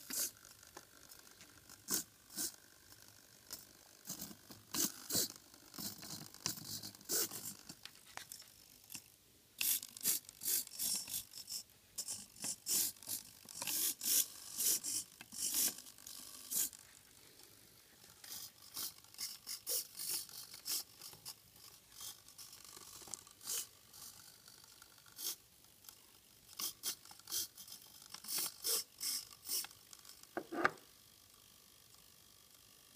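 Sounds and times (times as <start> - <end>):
servo motors whirring: 3.5 - 17.2, 18.0 - 25.5, 26.5 - 30.8.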